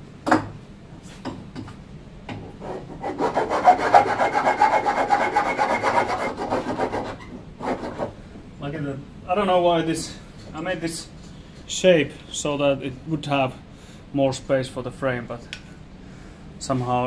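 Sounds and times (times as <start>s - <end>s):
file scraping on metal: 2.3s - 8.2s.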